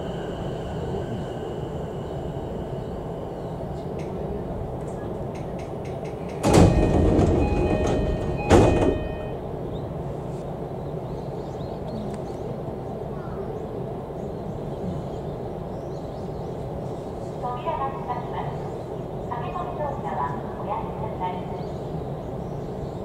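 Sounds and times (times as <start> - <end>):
train doors sliding open: 2.7 - 10.5
doors banging fully open: 6.2 - 9.4
door chime: 6.4 - 9.4.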